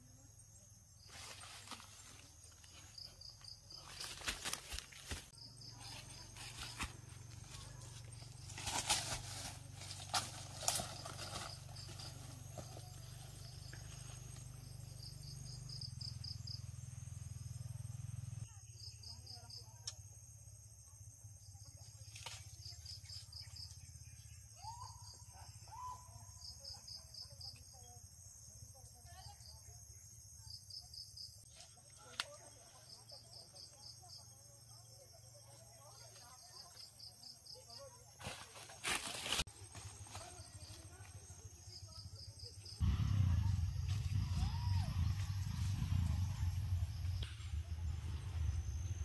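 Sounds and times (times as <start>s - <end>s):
high insect drone: 0.0s - 24.4s, 36.0s - 49.0s
insects chirping: 0.0s - 49.0s
insects chirping in quick pulses: 38.9s - 49.0s.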